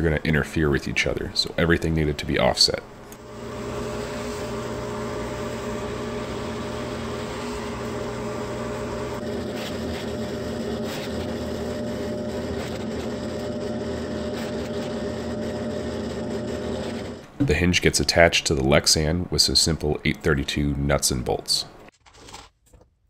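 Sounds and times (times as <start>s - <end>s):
electric motor humming: 3.2s - 17.4s.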